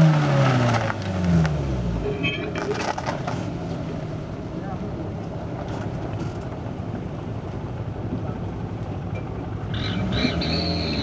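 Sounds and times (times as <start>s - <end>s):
truck engine revving: 9.6s - 11.0s.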